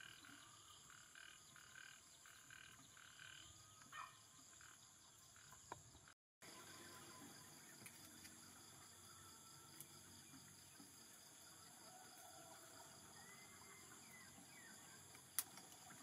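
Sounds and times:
high-pitched insect chorus: 0.0 - 5.8, 6.4 - 16.0.

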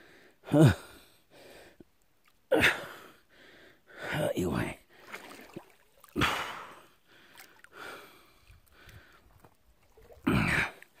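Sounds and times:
water splashing and sloshing: 4.9 - 11.0.

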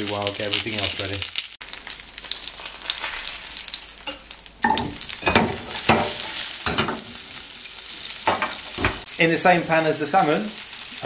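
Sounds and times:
crackling of frying vegetables: 0.0 - 11.0
oil sizzling in a frying pan: 0.0 - 11.0.

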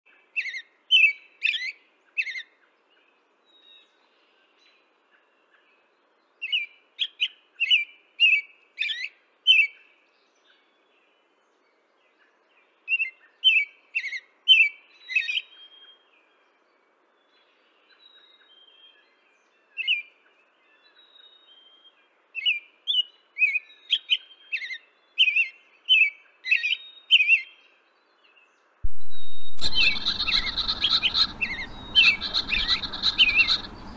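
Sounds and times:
small birds chirping: 16.6 - 33.9.

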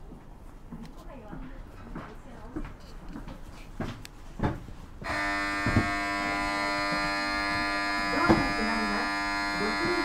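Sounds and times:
electric departure buzzer: 5.0 - 10.0
dull knocks: 5.6 - 6.1.

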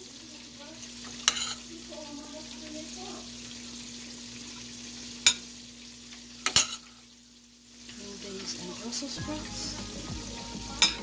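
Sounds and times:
utensil clinking on cookware: 1.2 - 1.7, 6.4 - 7.0.

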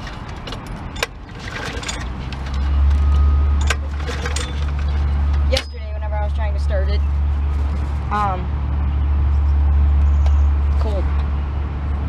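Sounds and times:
lawn mower engine starting: 0.0 - 5.8.

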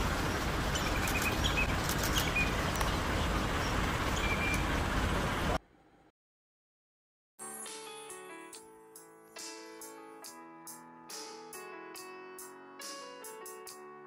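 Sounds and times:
motor boat engine drone: 0.0 - 5.6
high bird chirps: 0.7 - 2.6, 3.6 - 4.7.

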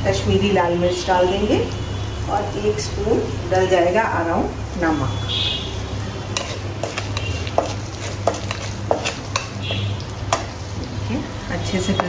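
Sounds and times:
spatula scraping metal pan: 6.3 - 10.5.

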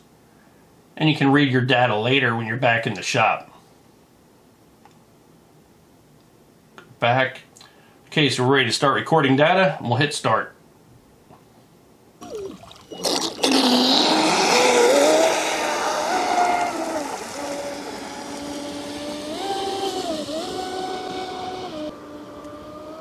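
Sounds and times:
electric motor whining: 12.2 - 23.0.

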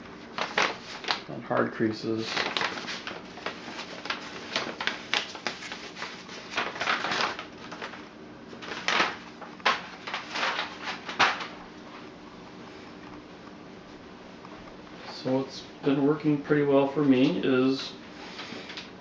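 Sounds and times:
paper crinkling and rustling: 0.2 - 12.0.

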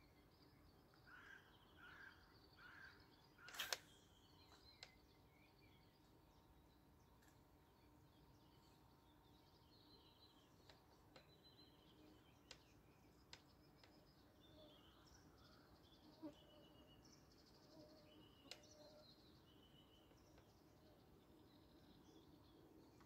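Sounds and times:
small birds chirping: 0.0 - 23.0
light clicks: 3.4 - 3.9.

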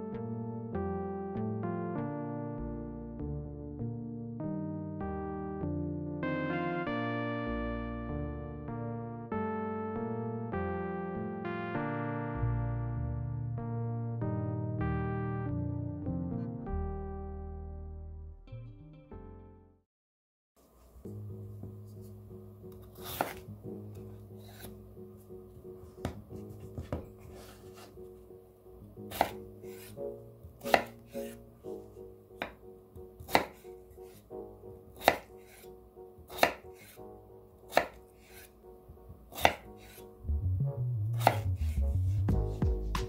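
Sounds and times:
soft background music: 0.0 - 19.8, 20.6 - 43.0
knife chopping on wooden board: 22.8 - 24.7, 26.0 - 28.0, 29.1 - 30.0, 30.6 - 31.4, 32.4 - 32.6, 33.2 - 34.2, 35.0 - 35.7, 36.3 - 37.0, 37.7 - 38.5, 39.3 - 40.0, 41.2 - 43.0.

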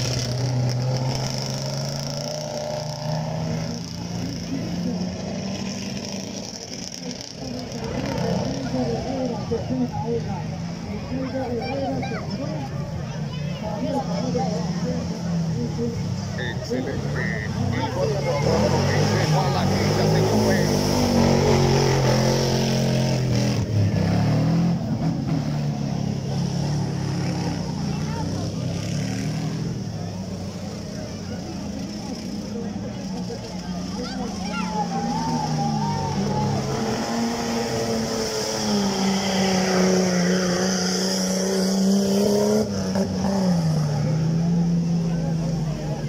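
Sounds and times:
off-road vehicle engine revving: 0.0 - 46.0.

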